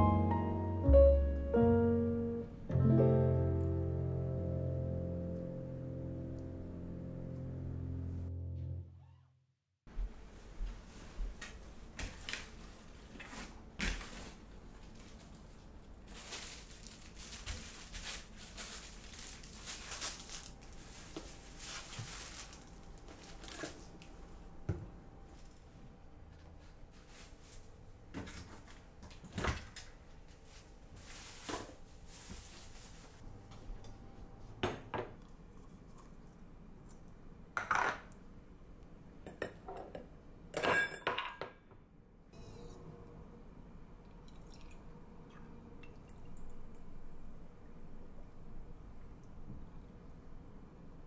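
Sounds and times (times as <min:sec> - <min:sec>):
plastic bags crinkling: 0:13.9 - 0:24.1.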